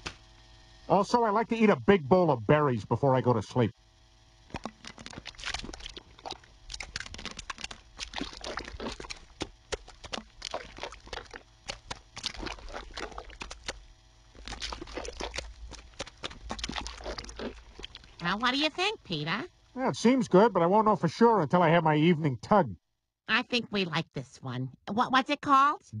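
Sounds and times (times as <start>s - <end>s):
machine low hum: 0.0s - 26.0s
wet mashing squishes: 4.5s - 18.9s.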